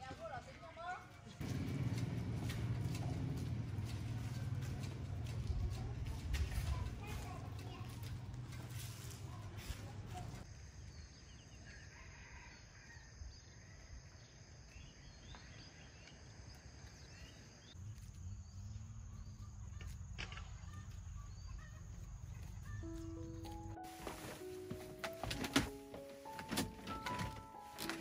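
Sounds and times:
small birds chirping: 14.5 - 23.7.

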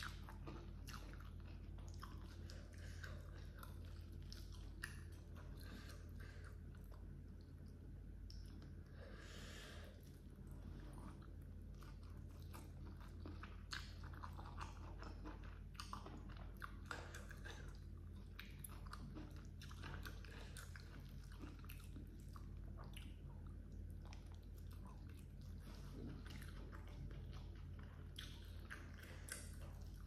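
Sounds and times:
person chewing with wet clicks: 0.0 - 9.2, 9.9 - 30.0
faint low hum: 0.0 - 30.0.

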